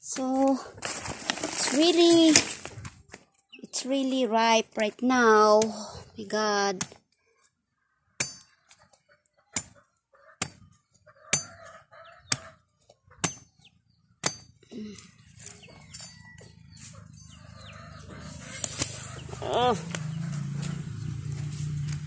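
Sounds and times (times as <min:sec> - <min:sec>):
small bird chirps: 0:03.3 - 0:03.9
chickens clucking: 0:08.5 - 0:13.8, 0:15.2 - 0:20.8.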